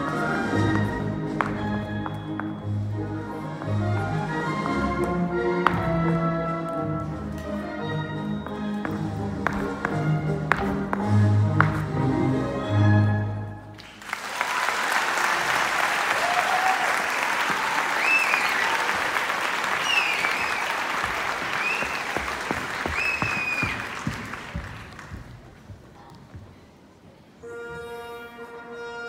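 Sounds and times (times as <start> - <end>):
orchestral music: 0.0 - 13.9, 27.4 - 29.0
audience applauding: 13.8 - 25.4
high-pitched cheers: 14.3 - 24.0.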